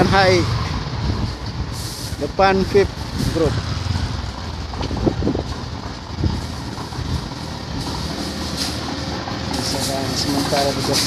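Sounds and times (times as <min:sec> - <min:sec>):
traffic rumble: 0:00.0 - 0:11.0
compressed air blow gun hissing: 0:01.7 - 0:02.3.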